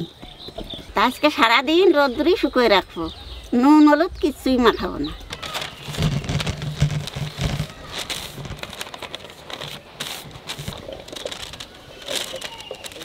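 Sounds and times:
newspaper rustling: 5.2 - 13.0
fruit cubes tipped onto paper: 5.3 - 13.0.

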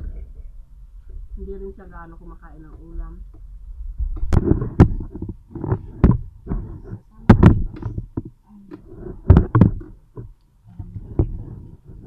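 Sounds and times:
sharp knocks and dull thumps: 2.7 - 11.7
person speaking: 6.5 - 9.4.

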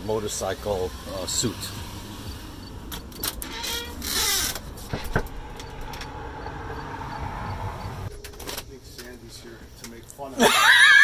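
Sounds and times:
door creaking: 2.3 - 6.8.

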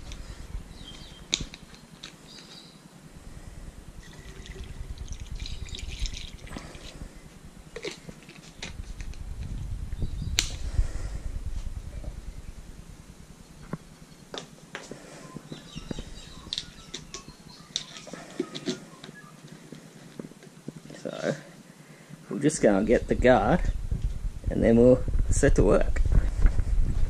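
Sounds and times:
liquid pouring through funnel: 4.0 - 7.0
plastic bottles clicking and knocking: 15.9 - 19.1.

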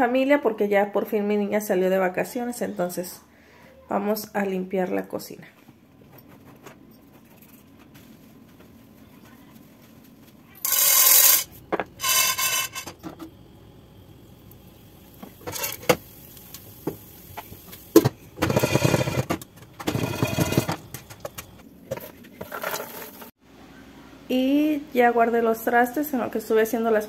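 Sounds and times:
popcorn pot rattling: 10.6 - 13.2, 15.1 - 23.3.

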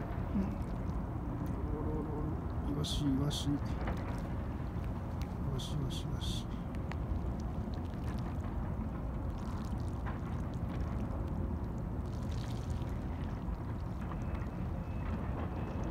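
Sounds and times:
harbour water washing: 0.0 - 15.9
small splashes: 3.7 - 15.9.

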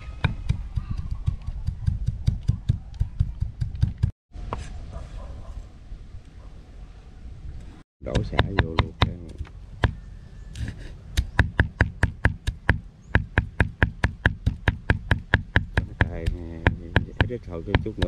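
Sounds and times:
knife chopping on wooden board: 8.1 - 9.2.

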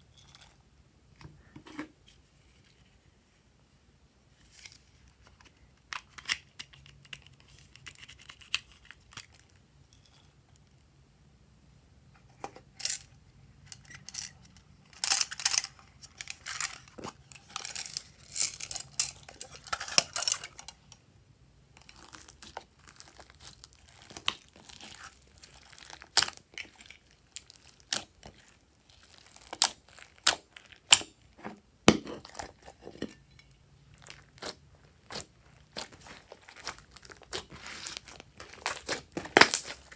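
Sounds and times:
slime squishing and crackling: 21.8 - 31.3, 33.9 - 39.9.

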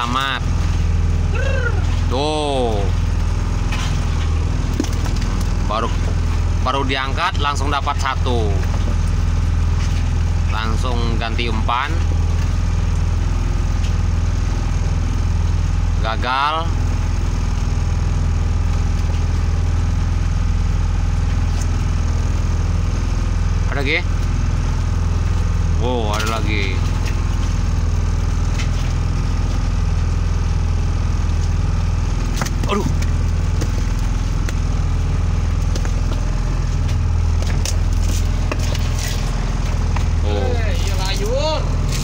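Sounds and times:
boat engine humming: 0.0 - 42.0.

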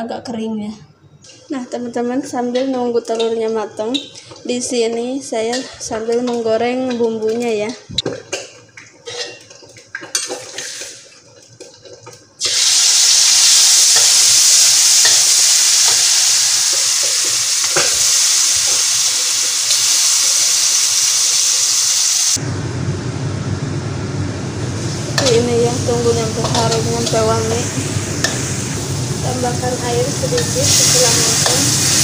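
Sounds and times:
chili paste sizzling in oil: 12.3 - 22.4, 23.8 - 32.0.

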